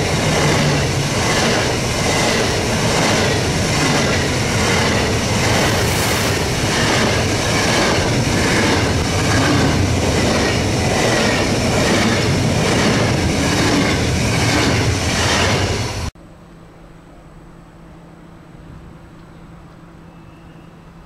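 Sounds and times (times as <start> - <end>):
train rushing past: 0.0 - 16.1.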